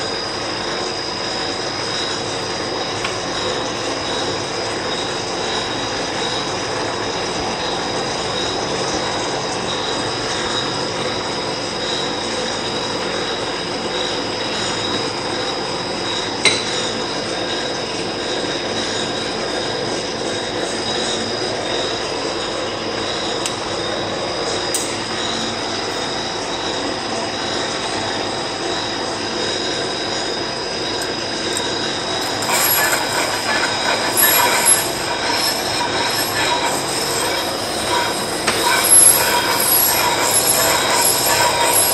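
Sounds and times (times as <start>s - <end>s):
metal lathe running with whine: 0.0s - 41.9s
harsh high-pitched noise: 31.8s - 41.9s.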